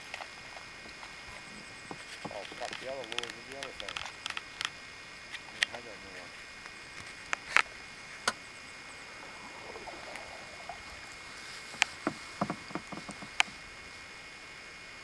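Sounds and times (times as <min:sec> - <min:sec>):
small water splashes: 0:06.3 - 0:14.2
paddle knocking against boat: 0:09.2 - 0:13.6.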